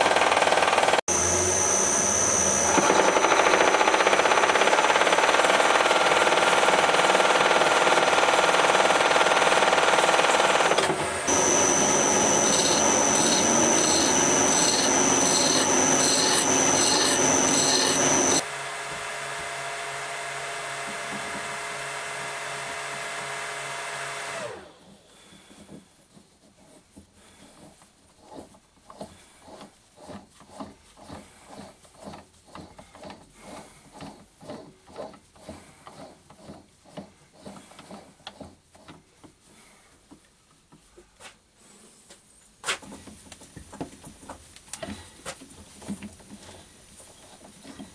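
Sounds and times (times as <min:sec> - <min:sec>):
metal lathe machining: 0:00.2 - 0:05.0, 0:10.2 - 0:18.4.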